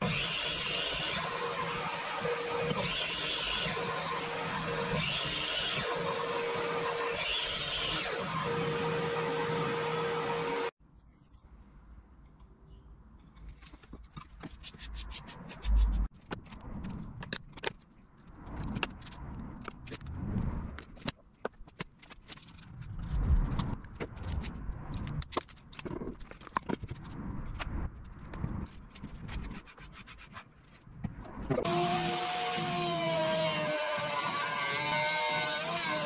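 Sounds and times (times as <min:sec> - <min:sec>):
clicks scrapes and rubs: 0:13.2 - 0:31.6.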